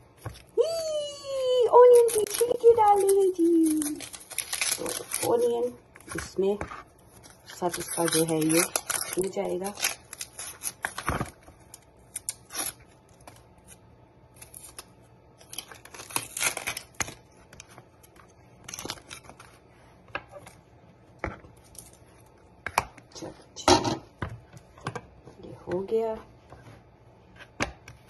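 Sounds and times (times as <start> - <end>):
onion skin rustling: 0.0 - 20.6.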